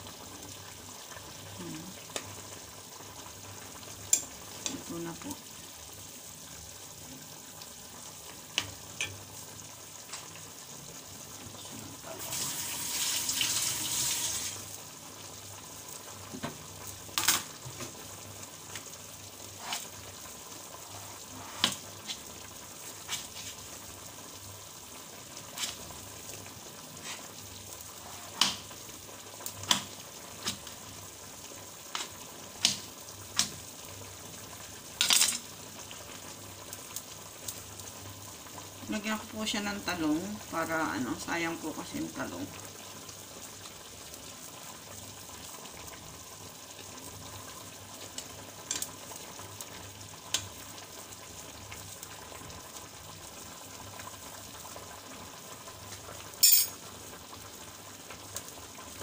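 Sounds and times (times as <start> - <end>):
fish sizzling in frying pan: 0.0 - 59.0.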